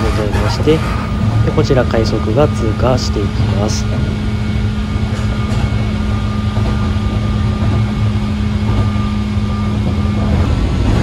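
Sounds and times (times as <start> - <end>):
train motor whine: 0.0 - 11.0
train wheels rumbling on rails: 0.0 - 11.0.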